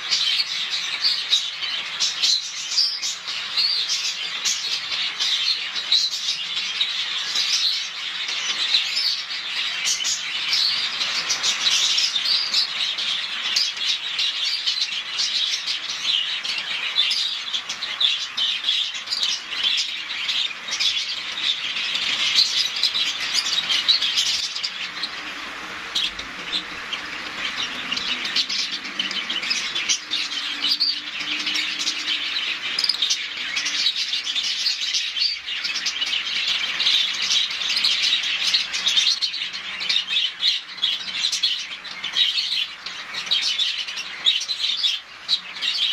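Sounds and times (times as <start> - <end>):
budgerigars chattering and chirping: 0.0 - 45.9.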